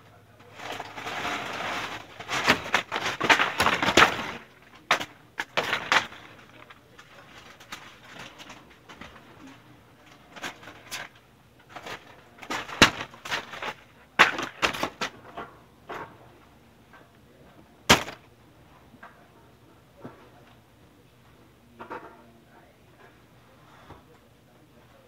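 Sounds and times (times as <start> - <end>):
sharp knocks and bangs: 17.9 - 18.3.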